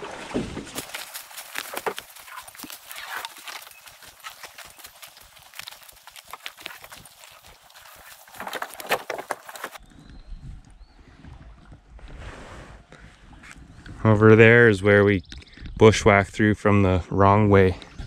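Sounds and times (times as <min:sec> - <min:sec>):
footsteps through leaf litter: 0:00.7 - 0:09.8.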